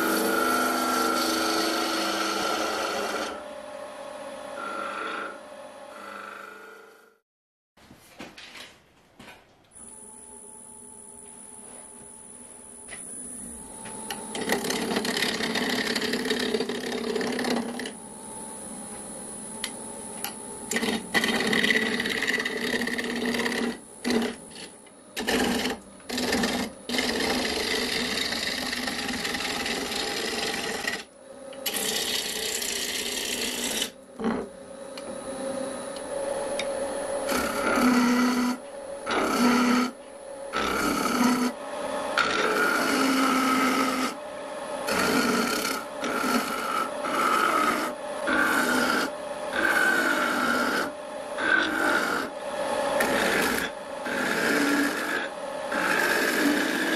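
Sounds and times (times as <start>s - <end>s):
wood lathe gouge cutting wood: 0.0s - 7.0s, 14.0s - 18.0s, 20.7s - 34.4s, 37.2s - 44.2s, 44.8s - 56.9s.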